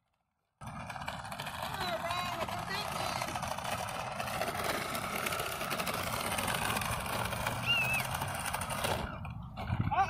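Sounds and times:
wheels rolling on grit: 0.0 - 10.0
toy car motor whirring: 5.0 - 9.3.

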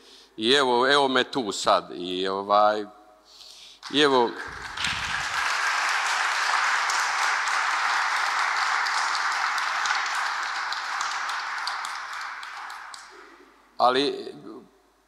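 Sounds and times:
crowd applauding: 3.8 - 13.5.

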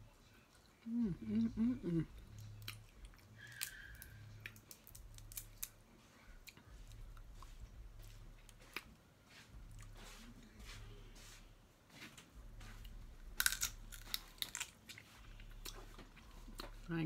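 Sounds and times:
crab shells snapping: 3.4 - 5.7, 13.4 - 14.7.

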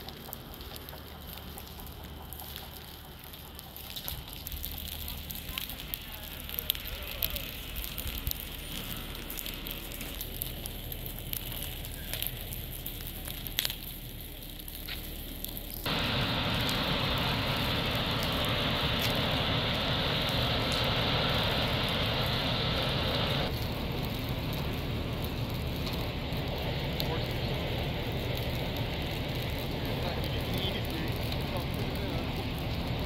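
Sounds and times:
dry grass fire crackling: 0.0 - 33.0
steady rushing noise: 15.9 - 33.0.

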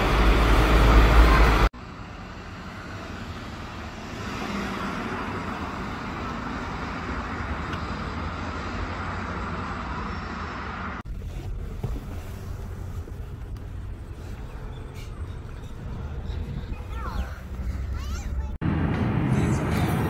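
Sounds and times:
road traffic noise: 0.0 - 20.0.

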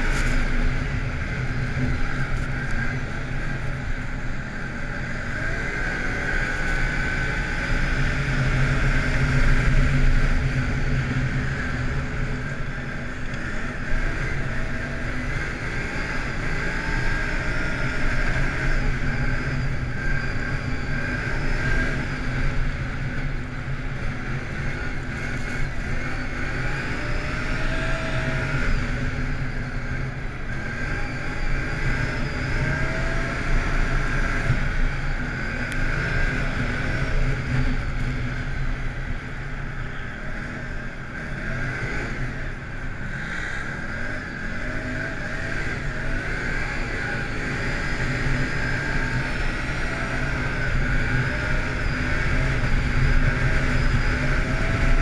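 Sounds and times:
atv engine running: 0.0 - 55.0.

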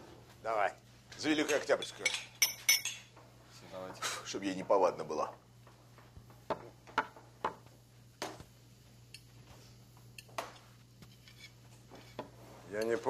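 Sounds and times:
tableware clinking: 1.3 - 3.2.

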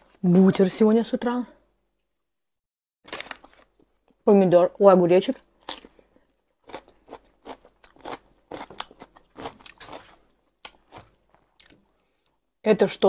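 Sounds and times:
cucumber crunching: 5.6 - 6.0, 6.6 - 11.9.

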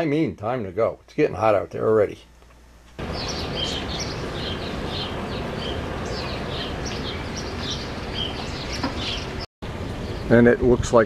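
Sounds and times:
steady background hiss: 0.0 - 11.0
birds chirping: 3.0 - 10.6.

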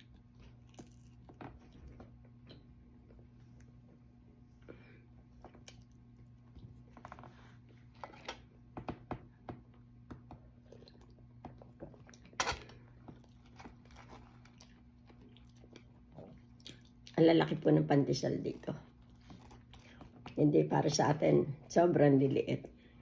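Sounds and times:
chewing: 0.0 - 3.8, 5.4 - 7.2, 13.0 - 17.2, 18.9 - 20.4
steady low hum: 0.0 - 23.0.

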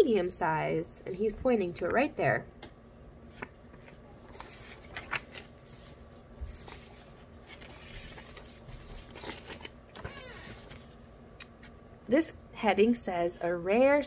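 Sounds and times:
paper sheets rustling: 3.3 - 11.0.

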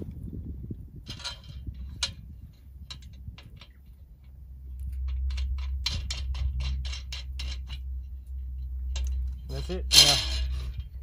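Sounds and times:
low rumble: 0.0 - 11.0
light metal clicks and taps: 1.1 - 7.9.

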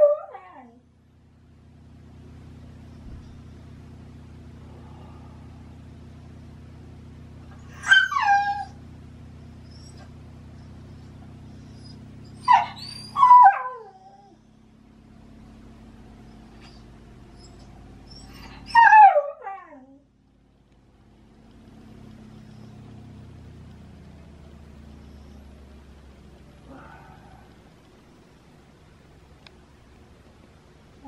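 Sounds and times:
dog whining: 0.0 - 0.8, 7.5 - 8.8, 9.6 - 14.5, 16.3 - 20.0.

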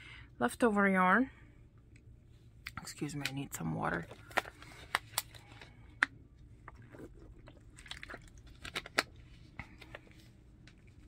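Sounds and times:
plastic bottle crinkling: 6.6 - 11.0.

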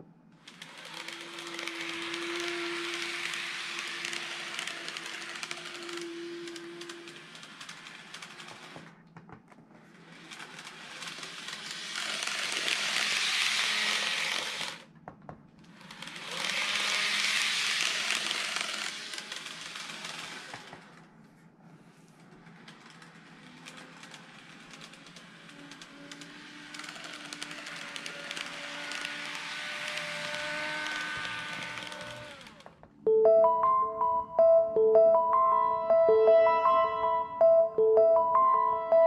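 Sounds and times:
model train motor whirring: 0.4 - 8.9, 9.9 - 14.9, 15.7 - 21.0, 22.4 - 32.6.

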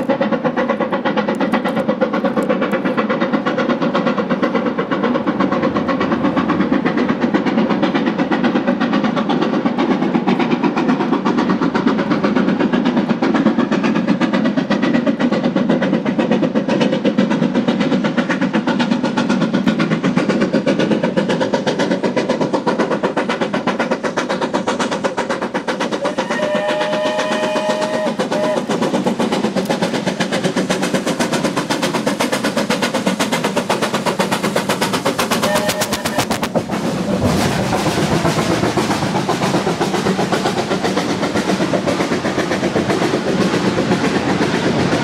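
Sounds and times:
steam locomotive exhaust beats: 0.0 - 45.0
train running noise: 0.0 - 45.0.

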